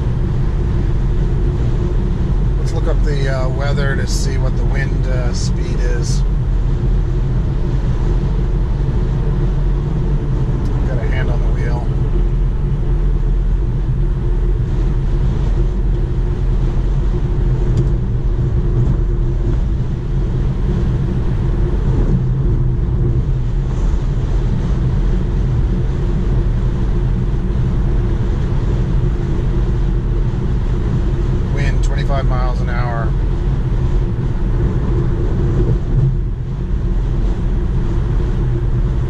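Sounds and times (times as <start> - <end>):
road noise inside car: 0.0 - 39.0.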